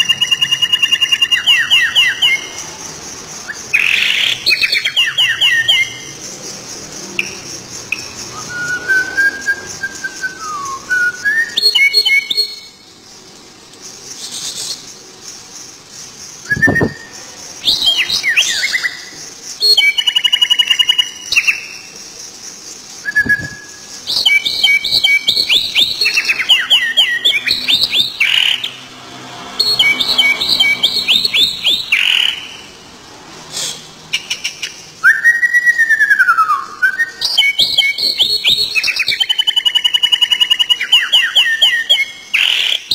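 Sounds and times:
bird whistling and trilling: 0:00.0 - 0:02.6, 0:03.4 - 0:06.1, 0:07.2 - 0:12.8, 0:16.4 - 0:21.9, 0:23.0 - 0:28.8, 0:29.6 - 0:32.7, 0:34.1 - 0:42.9.

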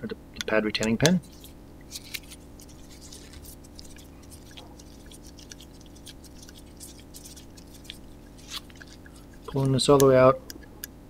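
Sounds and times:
hex key clicks and ticks: 0:03.7 - 0:11.0.

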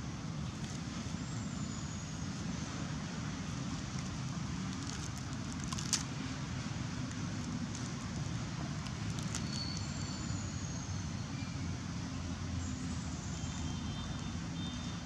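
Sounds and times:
distant road traffic rumble: 0:00.0 - 0:15.0
sharp crackle: 0:04.7 - 0:06.1.

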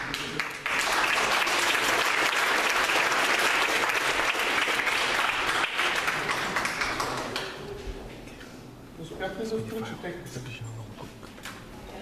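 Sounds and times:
congregation applauding: 0:00.0 - 0:07.6.

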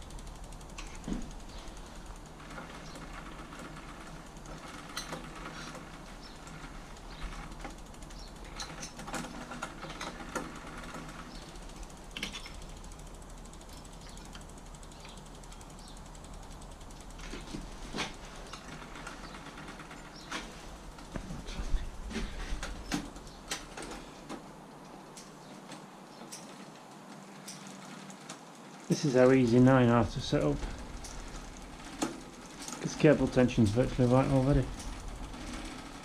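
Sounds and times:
bicycle parts and tools rattling: 0:00.0 - 0:36.0.

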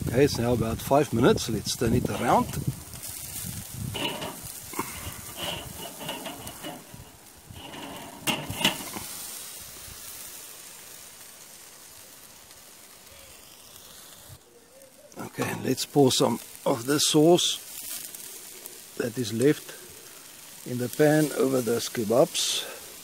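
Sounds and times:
meat sizzling over coals: 0:00.0 - 0:23.0
metal grill clinking and scraping: 0:01.0 - 0:09.4, 0:15.2 - 0:15.8
metal grill clanks: 0:01.8 - 0:09.3.

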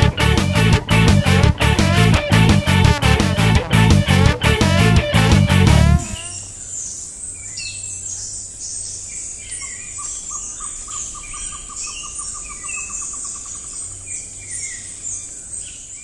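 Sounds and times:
series of whistled hoots: 0:05.9 - 0:06.5
birds chirping and whistling: 0:06.0 - 0:07.8.

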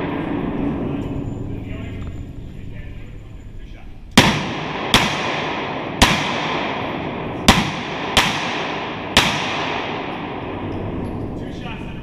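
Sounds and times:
pistol shots echoing indoors: 0:00.0 - 0:00.8, 0:04.2 - 0:11.0.

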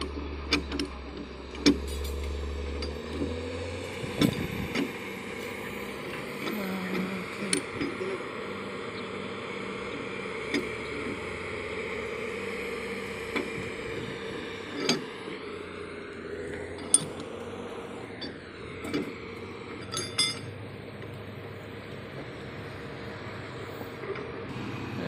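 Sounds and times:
steady mechanical hum: 0:00.0 - 0:25.0
metallic clinks and knocks: 0:19.8 - 0:20.5.

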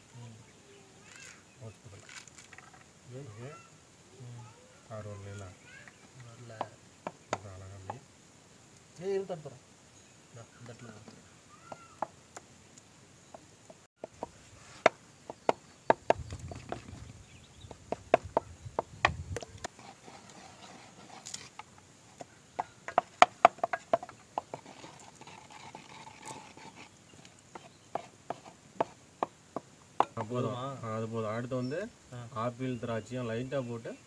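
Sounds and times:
wooden pestle knocking clay bowl: 0:22.6 - 0:24.7, 0:27.5 - 0:30.4.

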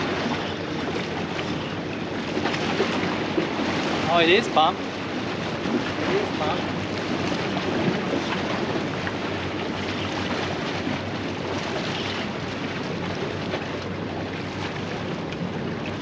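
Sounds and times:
sea water washing against rocks: 0:00.0 - 0:16.0
wind on microphone: 0:00.0 - 0:16.0.

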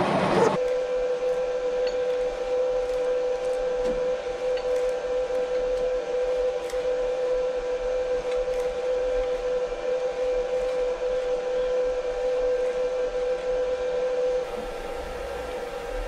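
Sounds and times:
machine motor whine: 0:00.0 - 0:16.0.

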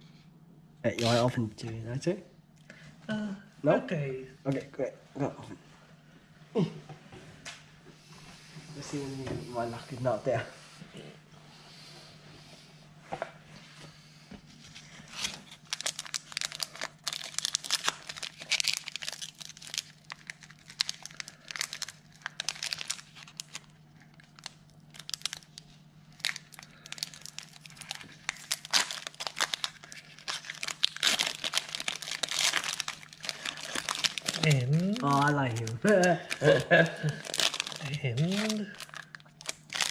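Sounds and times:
foil wrapper crinkling and tearing: 0:01.0 - 0:01.2, 0:14.7 - 0:39.9.

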